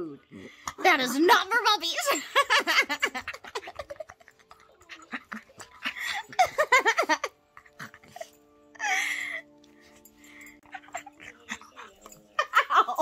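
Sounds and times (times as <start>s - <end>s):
background music: 0.0s - 13.0s
woman laughing: 2.0s - 9.5s, 10.6s - 13.0s.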